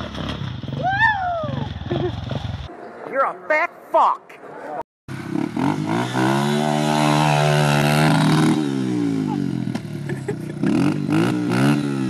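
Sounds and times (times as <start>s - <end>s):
rear wheel spinning in dirt: 0.0s - 2.7s
dirt bike engine revving: 5.1s - 12.0s.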